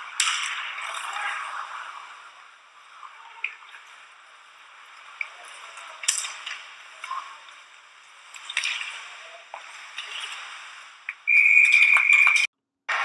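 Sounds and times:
hockey sticks and puck clacking: 0.0s - 2.4s, 5.0s - 13.0s
skates scraping on ice: 0.0s - 13.0s.

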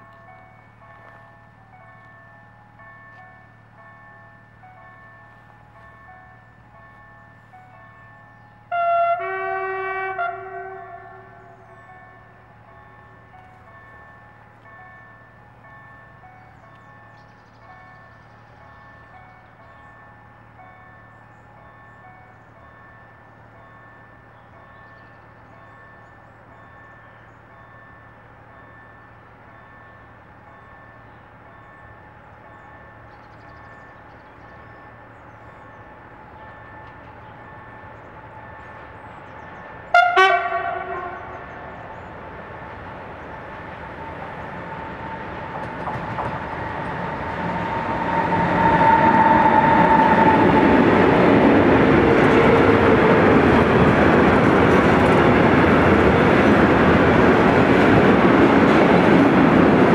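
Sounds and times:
freight train rumbling past: 0.0s - 59.9s
train horn blast: 8.7s - 11.7s, 39.9s - 41.6s, 44.9s - 51.0s.

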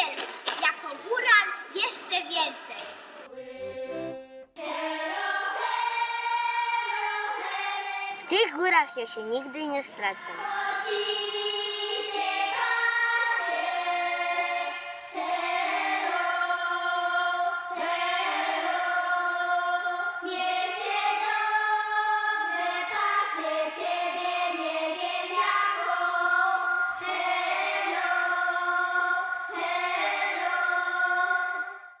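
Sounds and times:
children singing together: 3.2s - 8.3s, 9.9s - 32.0s.

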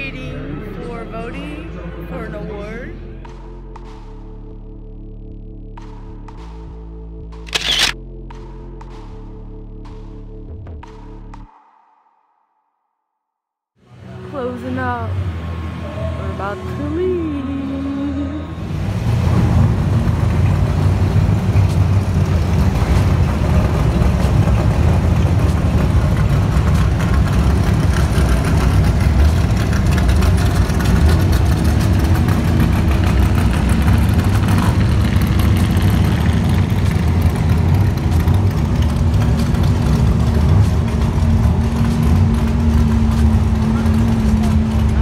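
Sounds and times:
car engine deep rumble: 13.9s - 45.0s.

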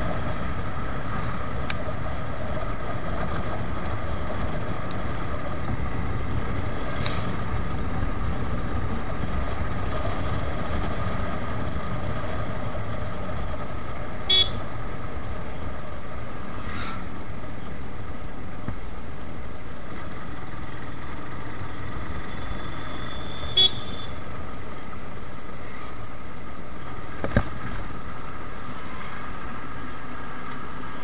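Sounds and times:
motorcycle engine rumble: 0.0s - 31.0s
short horn beeps: 14.3s - 14.6s, 22.3s - 24.2s.

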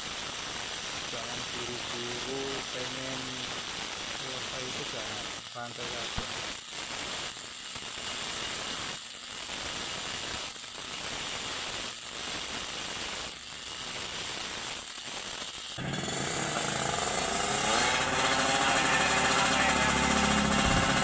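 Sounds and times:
die grinder whining: 15.5s - 21.0s
motorcycle engine revving: 15.8s - 21.0s.

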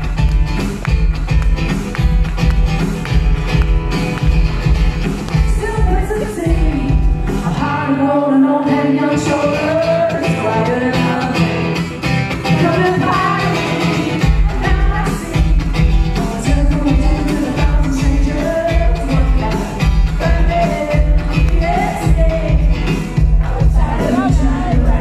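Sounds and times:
acoustic guitar: 0.0s - 25.0s
woman singing: 5.4s - 11.9s, 12.5s - 25.0s.

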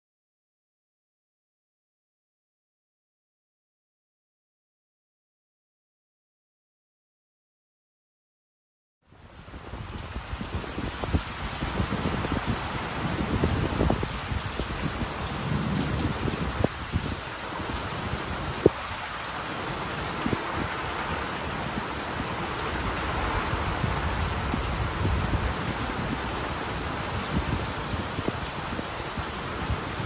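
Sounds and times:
heavy rain pouring: 9.1s - 30.0s
wind gusting: 9.3s - 30.0s.

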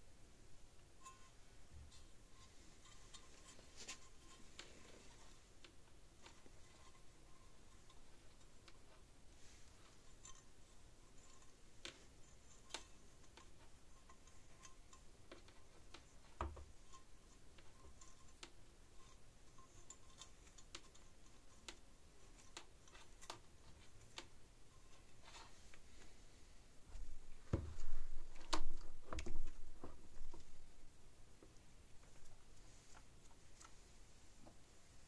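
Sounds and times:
soft thump: 27.5s - 28.0s.

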